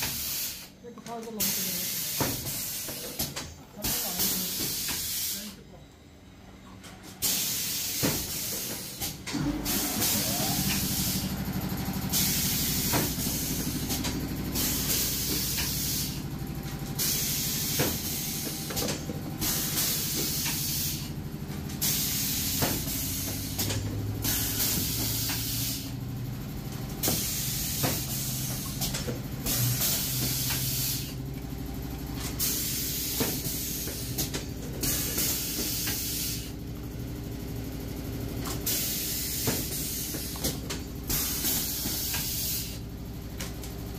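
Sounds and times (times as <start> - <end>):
low machine hum: 5.4 - 43.9
compressed air hissing: 9.7 - 11.4, 12.0 - 16.2, 17.0 - 18.5, 19.4 - 21.2, 24.2 - 25.9, 29.5 - 31.2, 34.8 - 36.6, 41.1 - 42.8.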